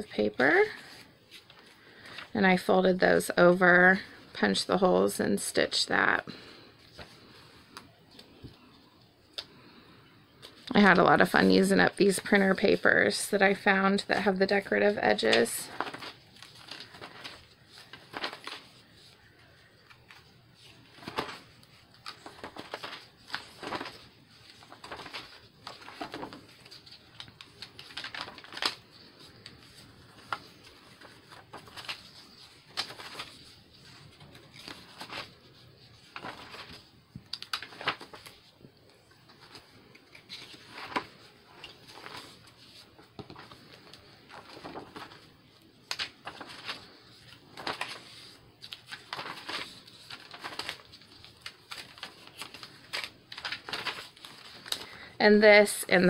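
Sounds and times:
paper pages turning: 13.9 - 55.0.

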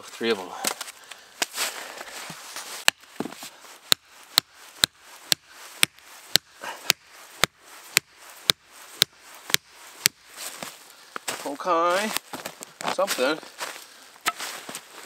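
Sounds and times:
axe striking wood: 2.8 - 10.2, 14.2 - 14.5.

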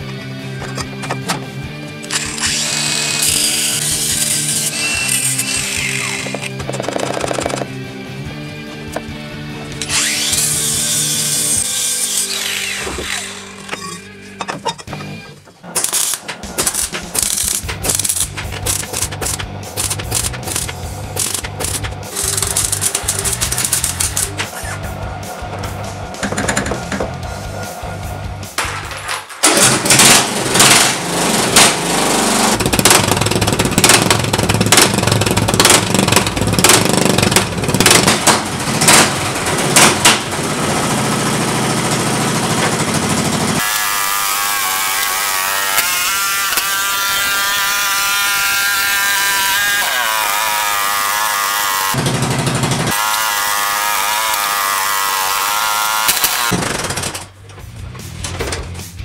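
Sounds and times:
riding lawn mower engine: 30.0 - 43.6, 51.5 - 53.2.

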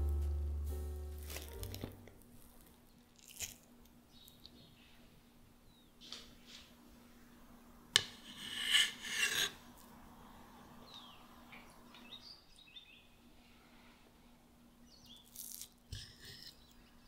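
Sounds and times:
knife scraping a plate: 8.0 - 9.6.

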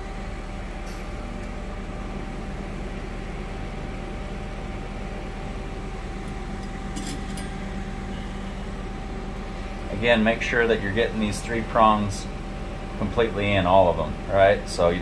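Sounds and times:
lathe idling hum: 0.0 - 15.0.

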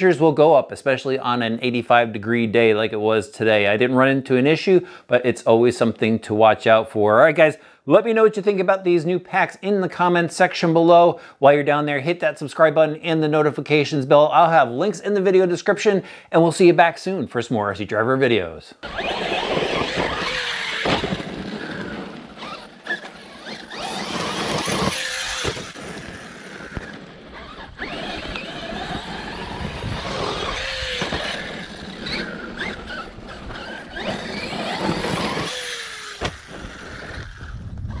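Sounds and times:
tyres crunching on gravel: 18.8 - 37.5
electric motor whining: 18.8 - 38.0.

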